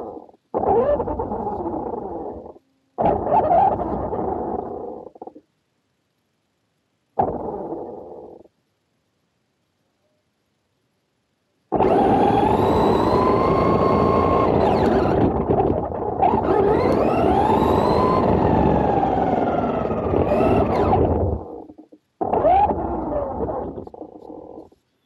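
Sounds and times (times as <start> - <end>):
electric motor whining: 11.7 - 21.4.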